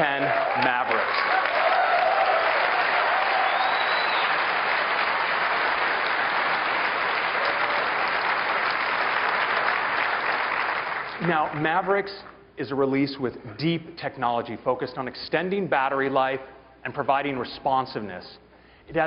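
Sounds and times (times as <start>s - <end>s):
person cheering: 0.0s - 4.3s, 7.4s - 8.0s
audience applauding: 0.0s - 12.0s
short whistle: 3.4s - 4.4s.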